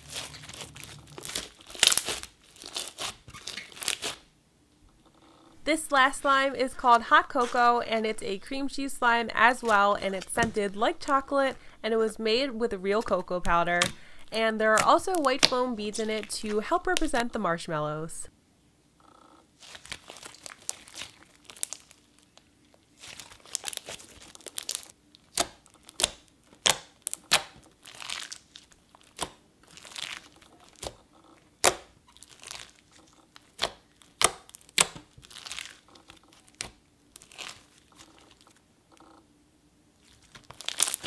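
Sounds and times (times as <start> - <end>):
slime crackling and popping: 0.0 - 4.3, 14.6 - 17.2, 19.6 - 38.6, 40.0 - 41.0
soft squishing: 0.0 - 4.3, 4.9 - 17.2, 19.6 - 39.2, 39.9 - 41.0.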